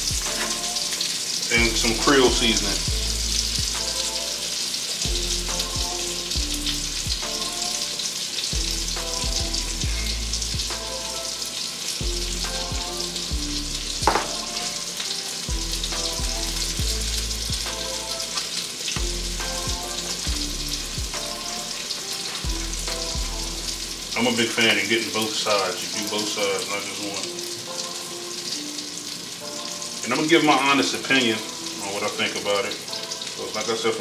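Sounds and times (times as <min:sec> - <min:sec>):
background music with bass: 0:00.0 - 0:04.5, 0:05.1 - 0:08.0, 0:08.6 - 0:11.4, 0:12.0 - 0:14.9, 0:15.5 - 0:18.4, 0:19.0 - 0:24.6
oil and butter sizzling in a skillet: 0:00.0 - 0:34.0.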